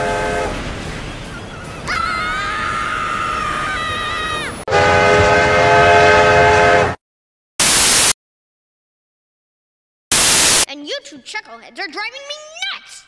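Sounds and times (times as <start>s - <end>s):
train horn chord: 0.0s - 0.7s, 4.7s - 7.0s
burst of hiss: 10.1s - 10.7s.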